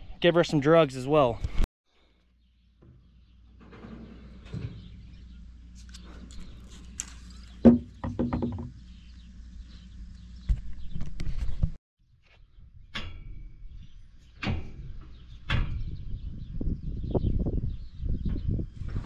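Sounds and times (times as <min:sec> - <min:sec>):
sharp knocks: 0:07.6 - 0:08.8.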